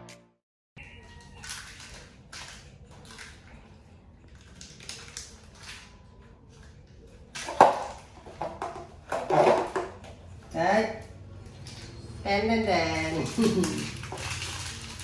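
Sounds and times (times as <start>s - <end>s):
cracker crunching: 0.9s - 8.2s.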